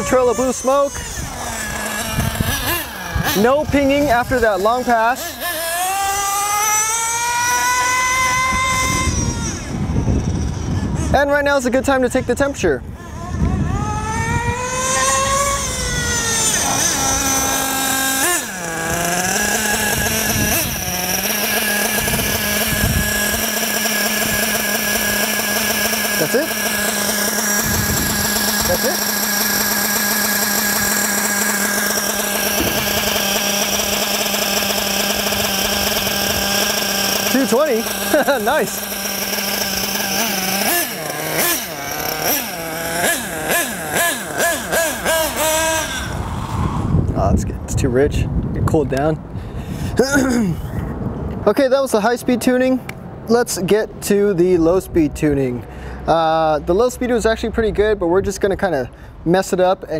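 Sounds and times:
nitro engine idling: 0:00.0 - 0:47.3.

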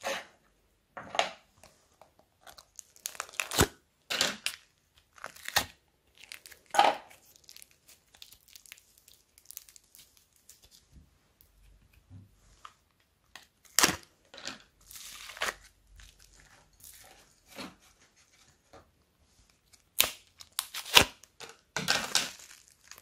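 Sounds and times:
fine slime crackles and clicks: 0:01.6 - 0:03.7, 0:04.4 - 0:10.8, 0:22.3 - 0:23.0
sticky slime tearing: 0:02.4 - 0:03.8, 0:04.4 - 0:10.7, 0:13.6 - 0:14.1, 0:19.8 - 0:21.3.

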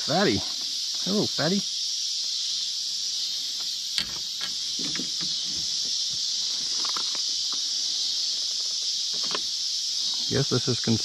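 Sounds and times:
night insects chirping: 0:00.0 - 0:11.0
handling knocks and rustles: 0:04.0 - 0:07.6.

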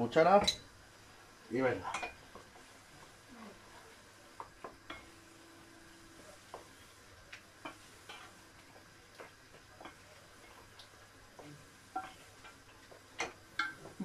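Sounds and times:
low steady hiss from pan: 0:00.0 - 0:14.0
utensil tapping against pot: 0:10.8 - 0:14.0.

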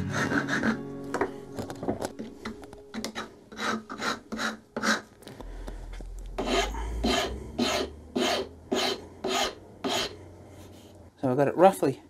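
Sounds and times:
hand file rasping on wood: 0:00.0 - 0:00.8, 0:03.0 - 0:05.0, 0:06.4 - 0:10.2.

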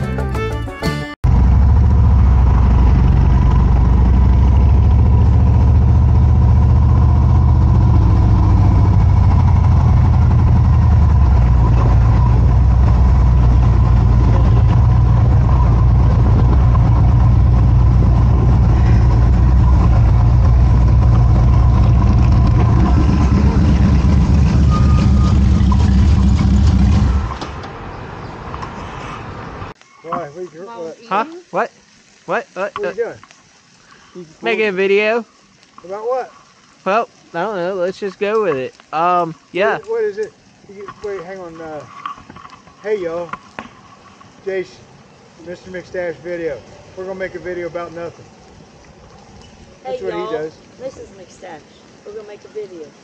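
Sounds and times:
motorcycle engine running: 0:01.2 - 0:27.3.

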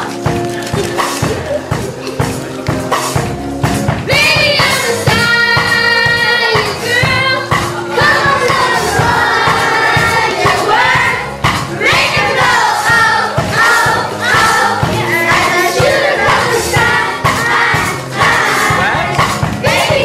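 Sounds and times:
jazz trio playing: 0:00.0 - 0:20.0
steady drum beat: 0:00.0 - 0:20.0
children singing: 0:04.1 - 0:20.0.

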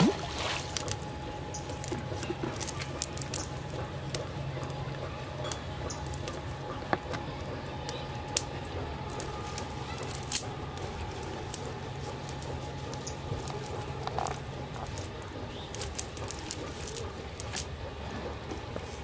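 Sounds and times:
wet squishes: 0:00.0 - 0:04.8
steady low hum: 0:00.0 - 0:19.0.

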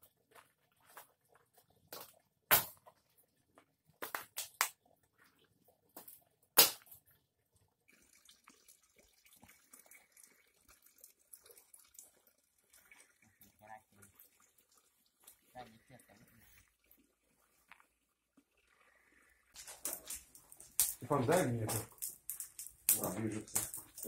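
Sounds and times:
faint rustles and ticks: 0:07.4 - 0:24.0.

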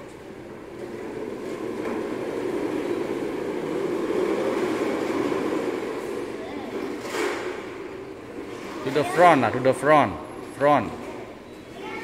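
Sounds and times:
hoverboard wheels rumbling on tiles: 0:00.0 - 0:10.4.

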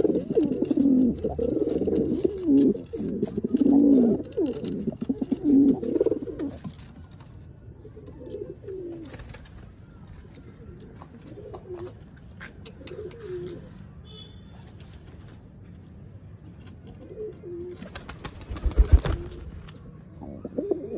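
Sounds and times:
pigeons cooing: 0:00.0 - 0:06.8, 0:07.8 - 0:09.2, 0:12.8 - 0:13.8, 0:17.0 - 0:19.5, 0:20.2 - 0:20.9.

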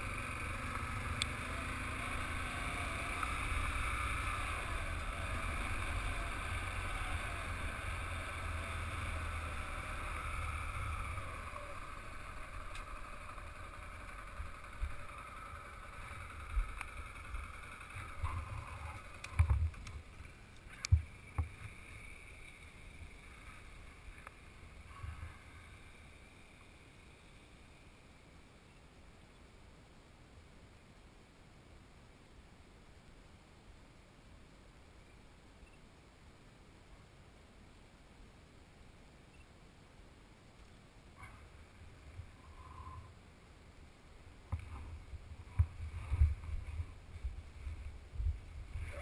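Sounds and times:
motorcycle engine: 0:00.0 - 0:28.0, 0:44.5 - 0:49.0
wind noise: 0:44.5 - 0:49.0.

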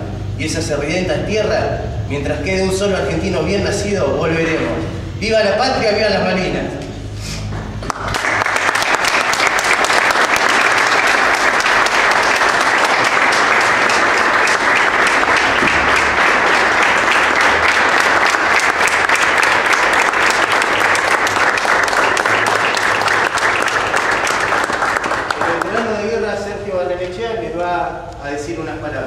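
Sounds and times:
audience applauding: 0:07.8 - 0:26.2.

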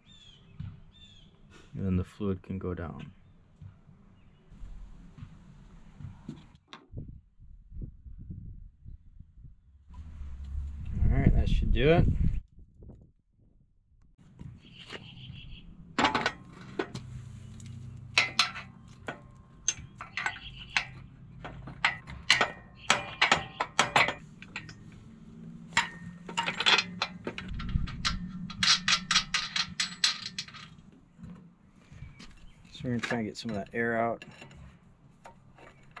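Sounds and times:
low steady hum: 0:15.5 - 0:36.0
metal parts clinking and scraping: 0:16.0 - 0:30.9, 0:32.3 - 0:36.0.

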